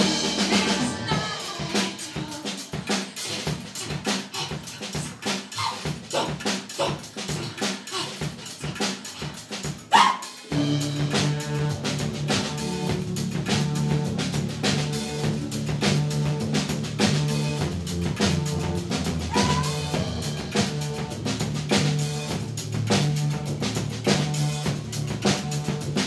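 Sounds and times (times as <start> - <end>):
woman singing: 0.0 - 3.1
drum kit beat: 0.0 - 26.0
double bass: 10.5 - 26.0.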